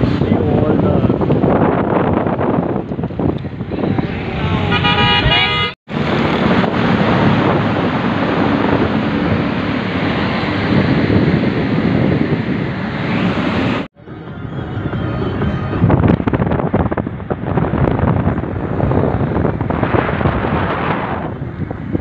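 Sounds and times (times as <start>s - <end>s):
road and traffic noise inside car: 0.0s - 20.4s
vehicle horn: 4.6s - 5.8s.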